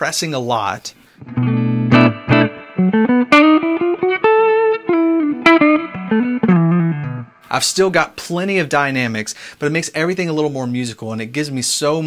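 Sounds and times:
electric guitar melody: 0:01.2 - 0:07.5.

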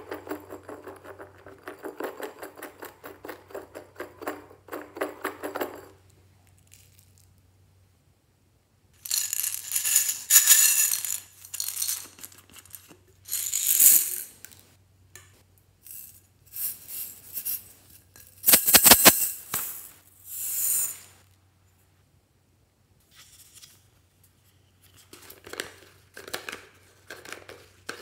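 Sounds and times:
loose bits rattling in bottle: 0:00.0 - 0:06.0, 0:09.0 - 0:14.6, 0:15.8 - 0:20.9.

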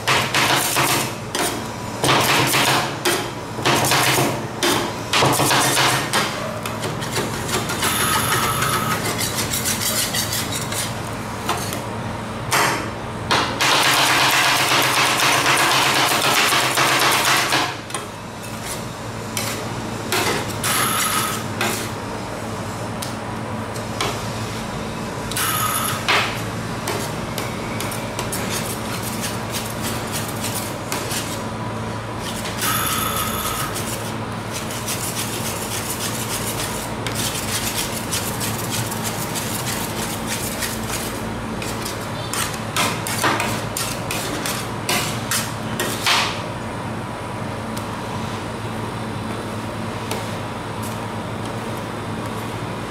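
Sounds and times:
steady machine hum: 0:00.0 - 0:52.9
metal spatulas scraping ice cream: 0:06.6 - 0:11.0, 0:26.8 - 0:31.4, 0:33.4 - 0:46.0.

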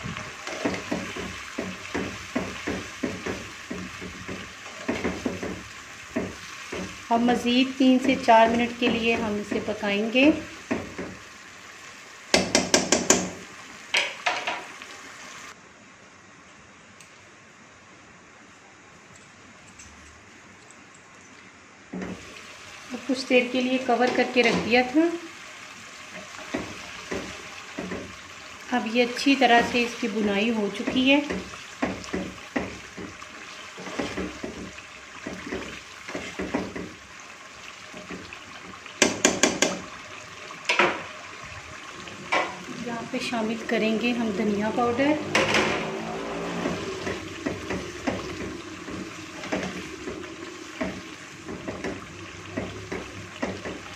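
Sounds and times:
spatula tapping frying pan: 0:00.4 - 0:07.0, 0:10.6 - 0:11.2, 0:12.3 - 0:14.7, 0:26.2 - 0:28.2, 0:30.8 - 0:37.1, 0:37.9 - 0:40.0, 0:47.0 - 0:53.9
utensil knocking on pan: 0:00.5 - 0:07.0, 0:12.3 - 0:13.4, 0:39.0 - 0:39.9
simmering curry hiss: 0:22.0 - 0:53.9.

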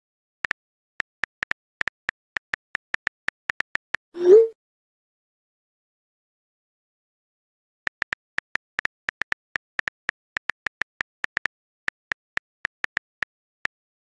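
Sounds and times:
phone keyboard key clicks: 0:07.9 - 0:13.8.

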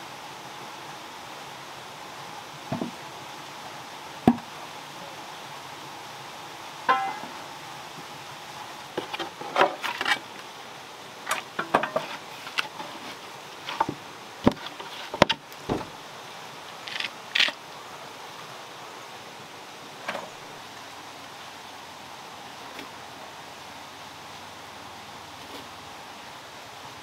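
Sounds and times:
steady background hiss: 0:00.0 - 0:27.0
stirring knocks and scrapes on pot: 0:11.6 - 0:15.4.

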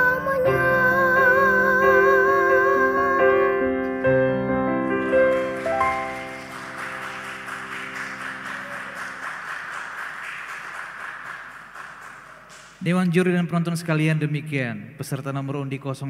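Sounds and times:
person singing: 0:00.0 - 0:04.0
audience applause: 0:04.8 - 0:12.8.

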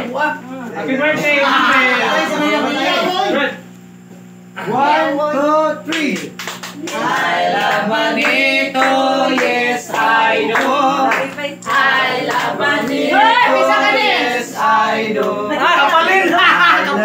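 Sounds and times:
group of people singing: 0:01.2 - 0:03.3, 0:06.8 - 0:17.0
hand clapping: 0:05.9 - 0:13.1.

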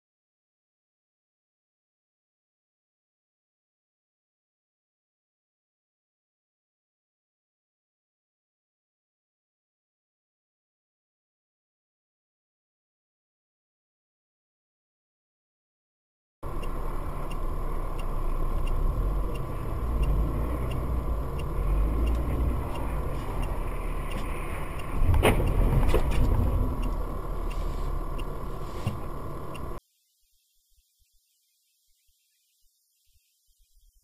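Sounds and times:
car engine and road rumble: 0:16.4 - 0:29.8
faint regular ticking: 0:16.4 - 0:29.8
electronic whine: 0:16.4 - 0:34.0.

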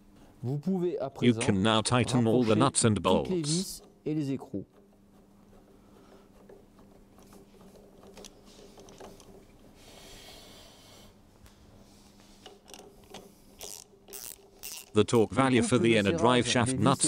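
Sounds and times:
ratchet wrench clicking: 0:12.6 - 0:15.0.

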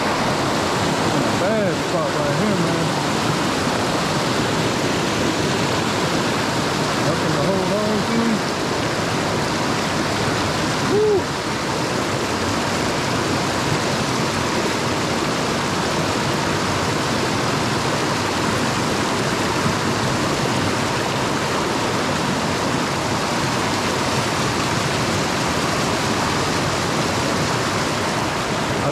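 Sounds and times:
water rushing over rocks: 0:00.0 - 0:28.9
hoot-like call: 0:10.8 - 0:11.3.

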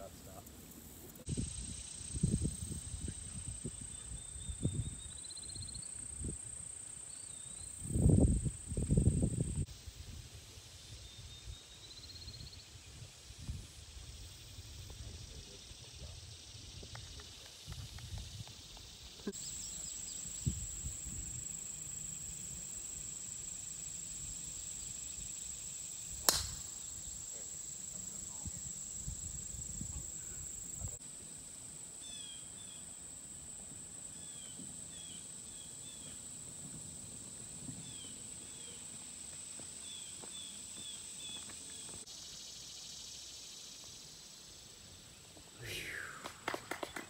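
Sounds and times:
insects droning: 0:00.0 - 0:47.0
golf club striking ball: 0:26.2 - 0:26.8.

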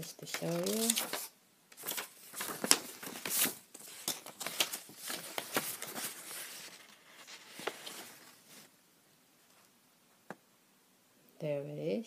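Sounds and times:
paper rustling and sliding: 0:00.3 - 0:08.7.

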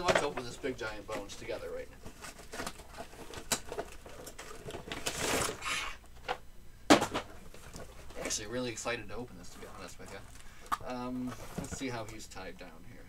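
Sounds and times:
cardboard box rustling: 0:00.0 - 0:05.7, 0:09.4 - 0:12.1
scraping rustle: 0:00.0 - 0:05.7, 0:07.2 - 0:12.2.

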